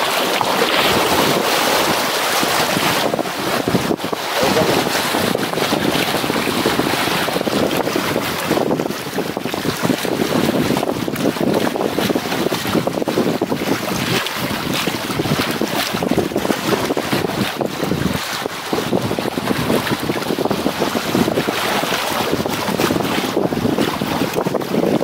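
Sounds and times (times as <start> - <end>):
sea water splashing on rocks: 0.0 - 25.0
wind buffeting microphone: 0.0 - 25.0.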